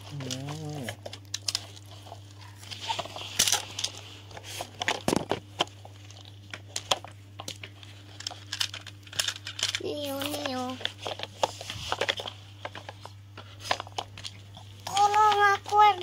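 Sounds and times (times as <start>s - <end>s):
steady low hum: 0.0s - 16.0s
plastic toy trucks clicking: 13.6s - 16.0s.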